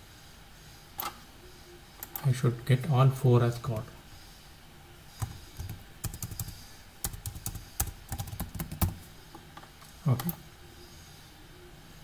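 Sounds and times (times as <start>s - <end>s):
computer keyboard typing clicks: 5.2s - 9.0s.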